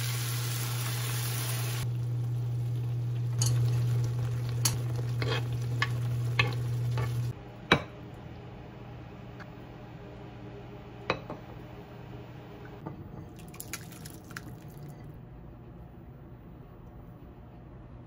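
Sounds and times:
water sizzling in hot pan: 0.0 - 7.3
induction cooktop hum: 0.0 - 18.0
curry bubbling: 13.4 - 15.0.

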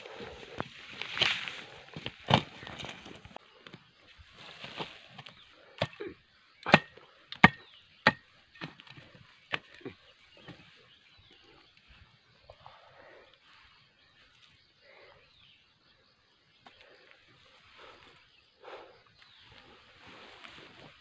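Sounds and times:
scraping of soil: 0.0 - 3.4
hoe chopping hard earth: 6.6 - 10.0.

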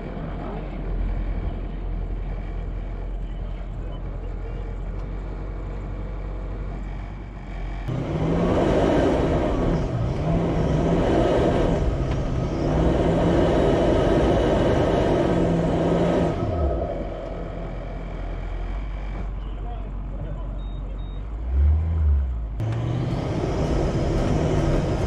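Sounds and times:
vehicle engine revving: 6.6 - 19.4, 21.3 - 25.0.

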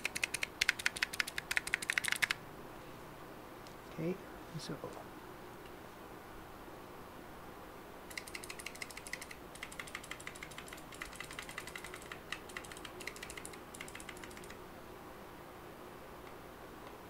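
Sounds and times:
mechanical keys clicking: 0.0 - 2.4, 8.1 - 14.6.

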